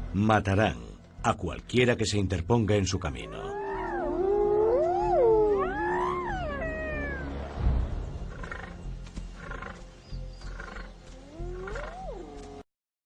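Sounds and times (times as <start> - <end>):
low music bed: 0.0 - 12.6
hyenas whooping: 3.2 - 7.5, 10.6 - 12.6
low thud: 7.6 - 8.4.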